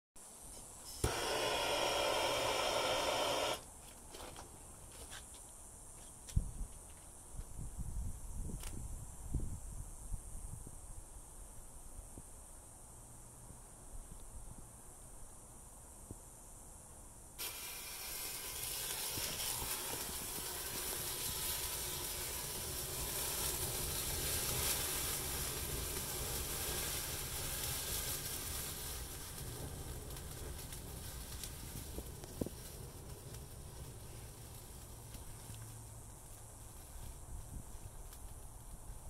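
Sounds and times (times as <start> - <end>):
thermite fizzing and hissing: 0.6 - 4.3, 17.4 - 39.0
sharp pop: 1.0 - 3.6.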